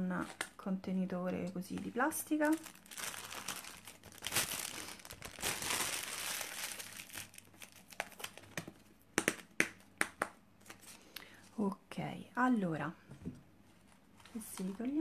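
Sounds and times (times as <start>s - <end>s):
cling film crinkling: 1.7s - 8.7s.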